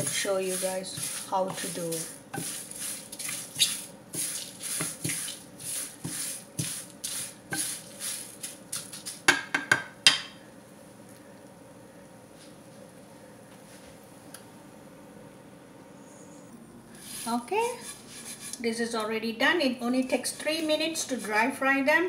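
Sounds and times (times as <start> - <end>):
wooden spatula scraping frying pan: 0.0 - 9.2, 17.0 - 18.6, 20.2 - 21.6.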